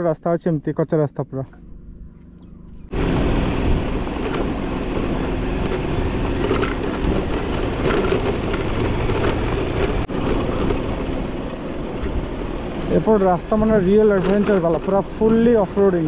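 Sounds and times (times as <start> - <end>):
motorcycle engine running: 1.2 - 16.0
wind rush on microphone: 2.9 - 14.1.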